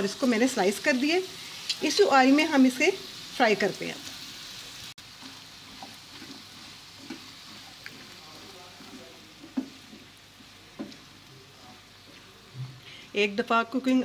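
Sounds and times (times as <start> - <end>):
onions sizzling in oil: 0.0 - 14.0
spatula knocking and scraping pan: 5.1 - 11.1.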